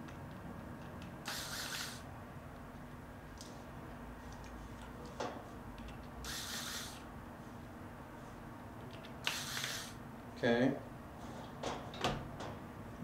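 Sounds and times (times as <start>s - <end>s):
electric screwdriver running: 1.3s - 2.0s.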